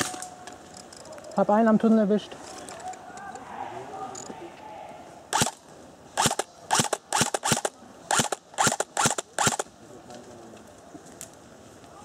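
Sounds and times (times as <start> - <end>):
airsoft gun shots: 5.3 - 5.6, 6.2 - 9.7.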